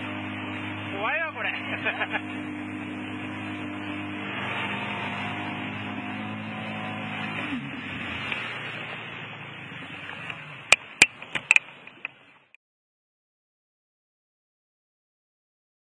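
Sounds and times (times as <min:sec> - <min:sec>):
jet ski engine running: 0:00.0 - 0:12.5
water splashing along hull: 0:00.0 - 0:12.6.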